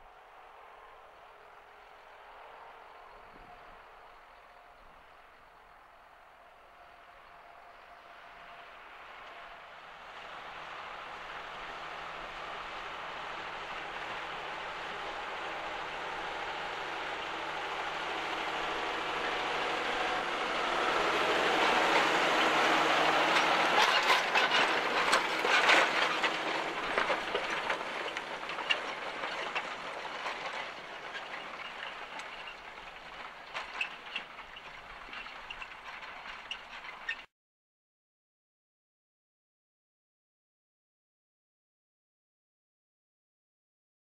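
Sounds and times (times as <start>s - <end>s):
tractor diesel engine under load: 7.2s - 37.3s
rush of turned soil: 8.4s - 37.3s
plough clattering and clicking: 11.6s - 37.3s.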